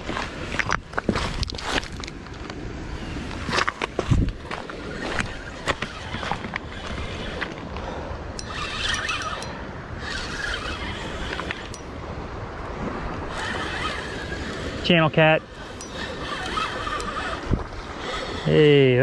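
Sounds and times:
spinning reel cranking: 8.4 - 11.9, 13.3 - 18.8.

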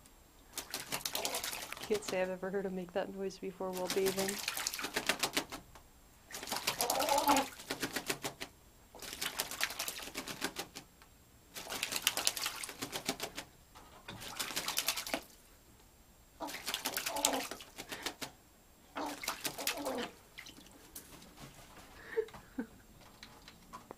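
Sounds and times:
bird splashing water: 0.5 - 2.4, 3.7 - 10.9, 11.5 - 15.5, 16.4 - 22.3.

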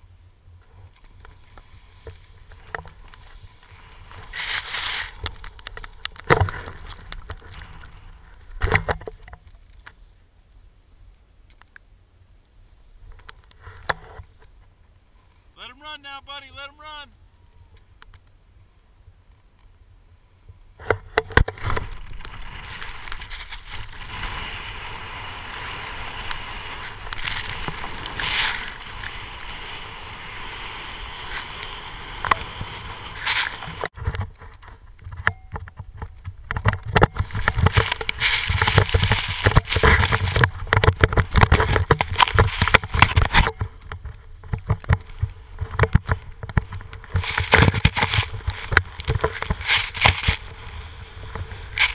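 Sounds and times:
snowboard scraping through snow: 1.4 - 2.5, 3.2 - 5.2, 21.6 - 33.9, 37.2 - 40.7, 47.0 - 51.9.

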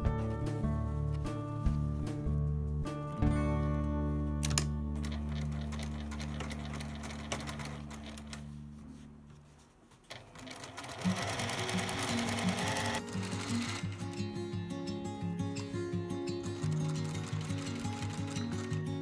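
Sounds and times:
light background music: 0.0 - 19.0
sewing machine running: 5.0 - 8.4, 10.1 - 14.2, 16.6 - 18.8.

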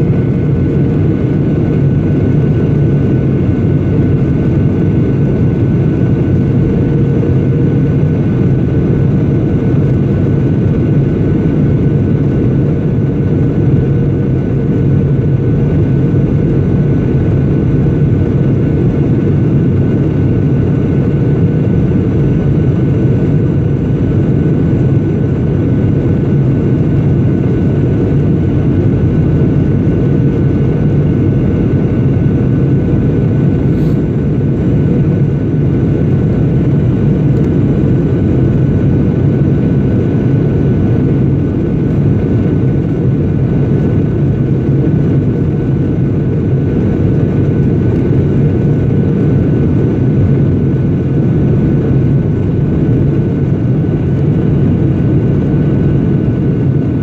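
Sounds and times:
faint high engine whine: 0.0 - 57.0
jet engine and airflow drone: 0.0 - 57.0.

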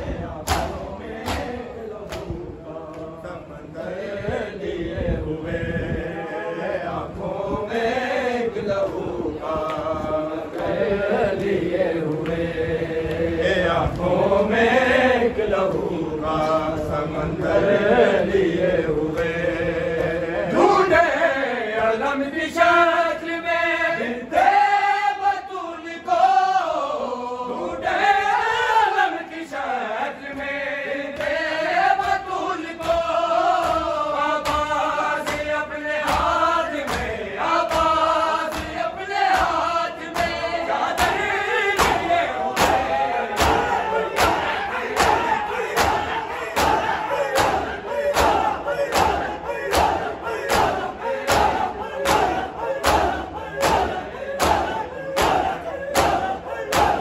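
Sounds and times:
men chanting a lament in unison: 0.0 - 57.0
chest-beating slaps: 0.4 - 3.2, 32.8 - 57.0.

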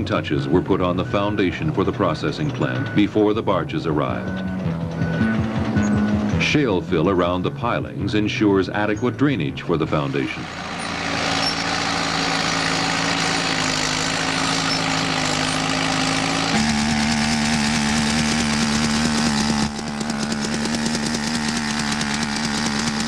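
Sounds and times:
machine engine running: 0.0 - 23.0
rammer compactor pounding gravel: 0.0 - 23.0.

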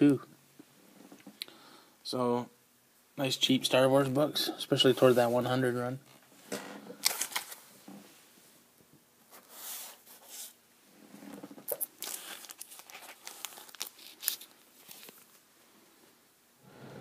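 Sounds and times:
plastic bags crinkling: 7.0 - 7.6, 11.6 - 15.4.

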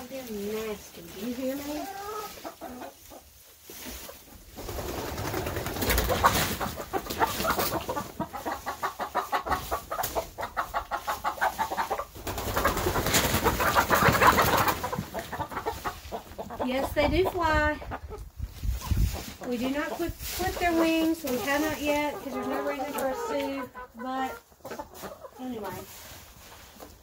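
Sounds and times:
hens clucking: 0.0 - 27.0
wing flapping: 4.6 - 6.7, 12.2 - 15.0.

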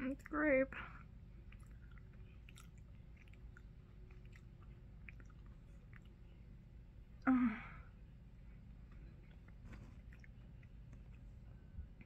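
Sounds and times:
mouth chewing clicks and smacks: 1.4 - 6.5, 9.2 - 11.2.

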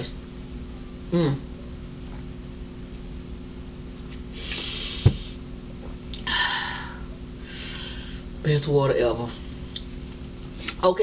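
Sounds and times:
low steady hum: 0.0 - 11.0
breathy exhale: 6.2 - 8.3.

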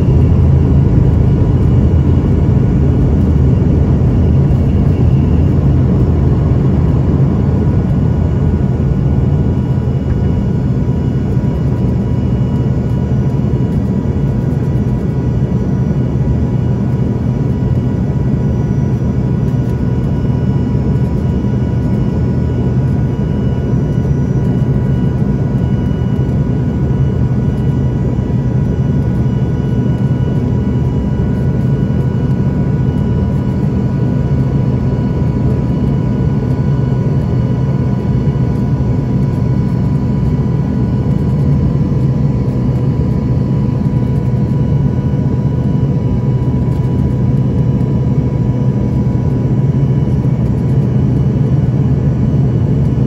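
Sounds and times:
aircraft cabin engine rumble: 0.0 - 53.0
thin steady whine: 0.0 - 53.0.

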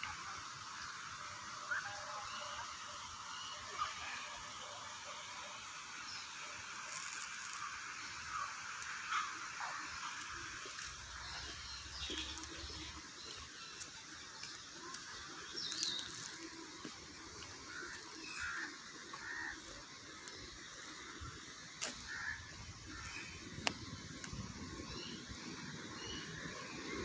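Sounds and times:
bird chirps: 10.6 - 16.6.

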